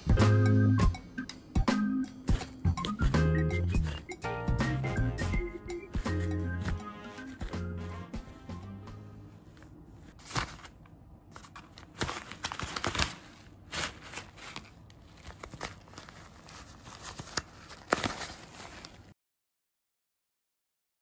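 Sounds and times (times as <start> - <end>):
sheet rustling and crinkling: 2.2 - 4.1, 5.3 - 8.6, 9.2 - 19.2.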